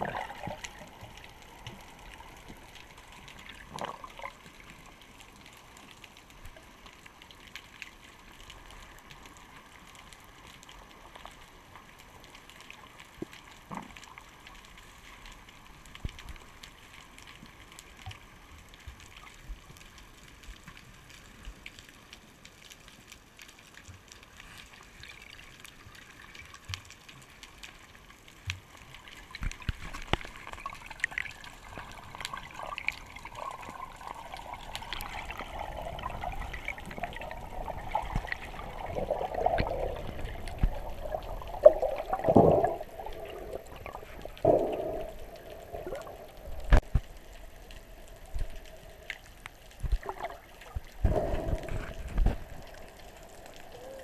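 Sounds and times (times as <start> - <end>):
bubbles: 0.0 - 1.6, 3.4 - 4.6, 29.3 - 47.2, 48.3 - 52.8
muffled underwater hiss: 28.5 - 54.0.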